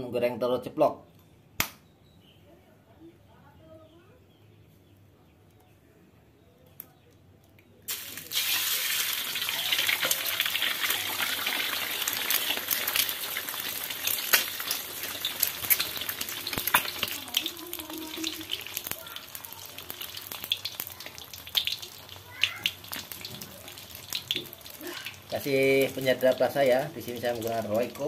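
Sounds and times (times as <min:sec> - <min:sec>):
egg sizzling in hot oil: 0:07.9 - 0:28.0.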